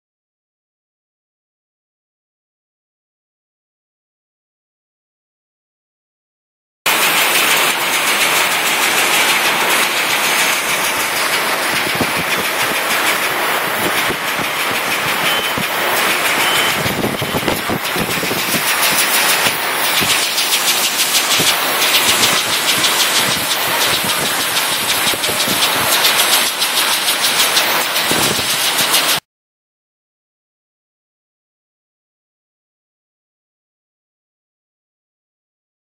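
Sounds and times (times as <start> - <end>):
conveyor machine noise: 6.9 - 29.2.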